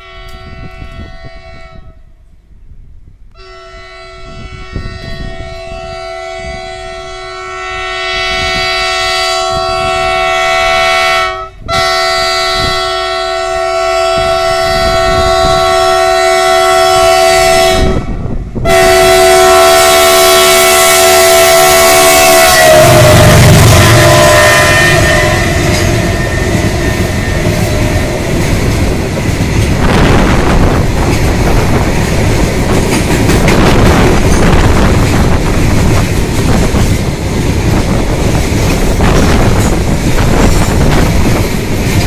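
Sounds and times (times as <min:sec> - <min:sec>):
train horn blasts: 0:00.0 - 0:02.2, 0:03.3 - 0:29.0
train rumble: 0:00.0 - 0:42.0.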